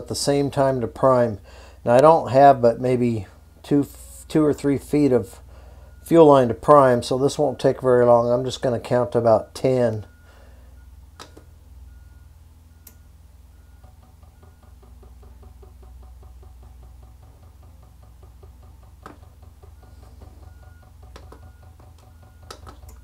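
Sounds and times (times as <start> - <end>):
sharp clicks: 11.2 - 11.5, 21.0 - 23.0
fuel pump ticking rapidly: 13.8 - 23.0.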